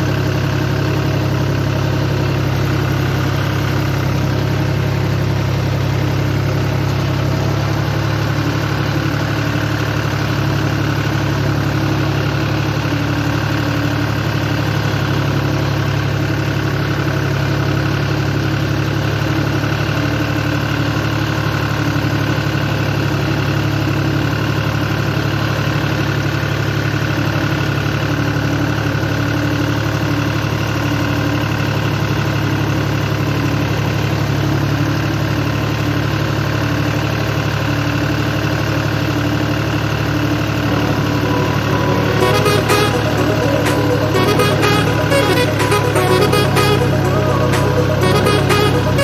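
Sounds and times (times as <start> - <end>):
tractor diesel engine running: 0.0 - 49.0
music: 40.7 - 49.0.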